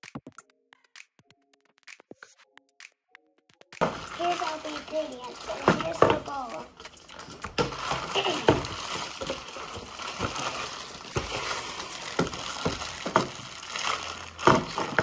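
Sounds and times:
plastic bag crinkling: 3.8s - 15.0s.

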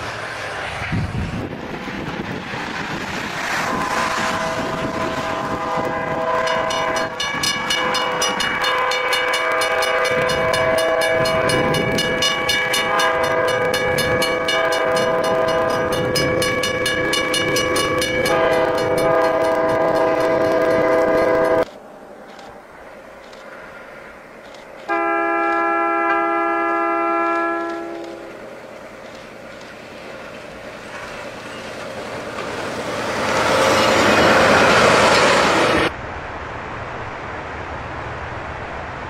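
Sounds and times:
multi-chime train horn: 3.7s - 21.6s, 24.9s - 28.4s.

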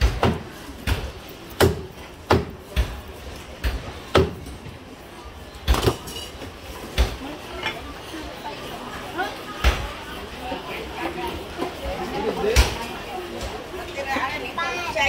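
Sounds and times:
cleaver chopping on wooden block: 1.6s - 2.9s.

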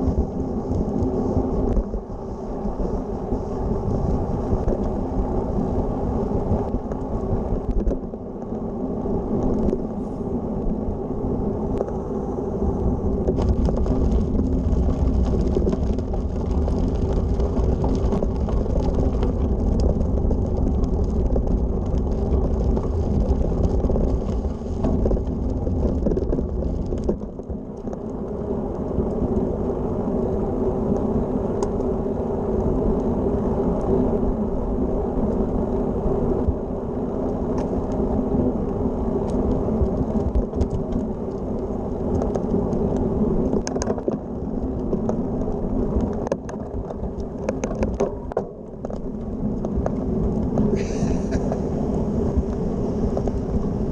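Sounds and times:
bike rolling on pavement: 0.0s - 53.9s
bike tyres rumbling on gravel: 0.0s - 53.9s
small ticks: 30.9s - 34.2s, 37.2s - 51.6s.

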